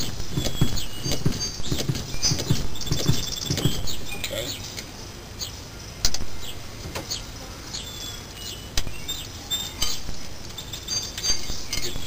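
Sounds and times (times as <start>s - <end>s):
small birds chirping: 0.0s - 12.0s
metallic clicks and clinks of tools: 9.6s - 12.0s.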